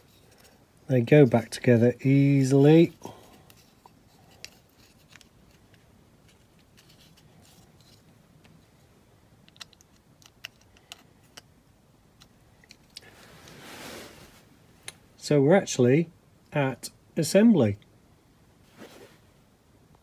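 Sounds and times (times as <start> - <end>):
plastic parts clicking together: 9.4 - 11.5.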